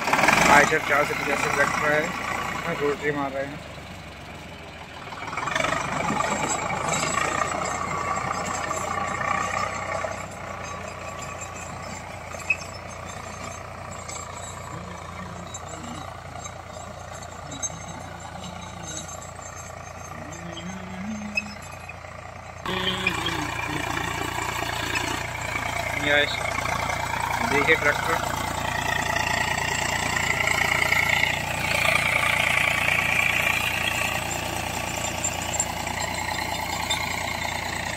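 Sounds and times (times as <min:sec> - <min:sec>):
rotavator churning soil: 0:00.0 - 0:03.5, 0:22.6 - 0:37.9
tractor diesel engine under load: 0:00.0 - 0:37.9.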